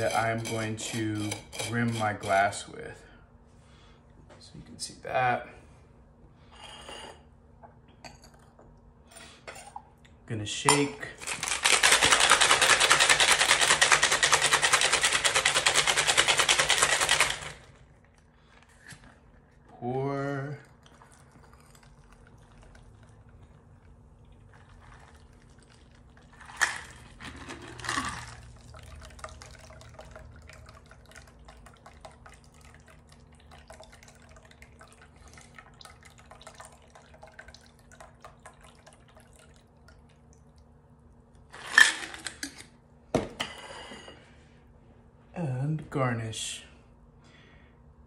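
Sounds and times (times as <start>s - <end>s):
shaker clattering: 11.2s - 17.6s
ice crackling in metal shaker: 11.2s - 17.8s, 24.4s - 28.6s
liquid trickling and dripping: 20.4s - 26.4s, 28.4s - 40.8s.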